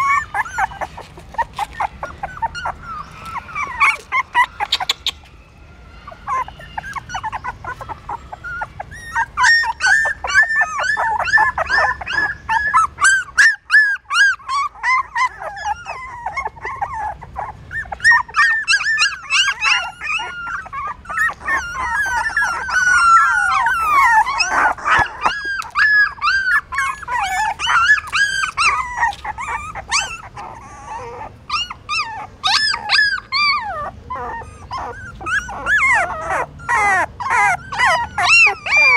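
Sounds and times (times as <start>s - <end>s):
puppies whimpering and squealing: 0.0s - 38.9s.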